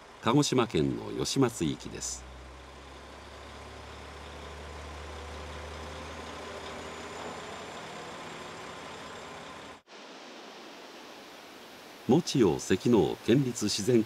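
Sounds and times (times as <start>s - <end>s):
diesel railcar engine droning: 0.0s - 9.9s.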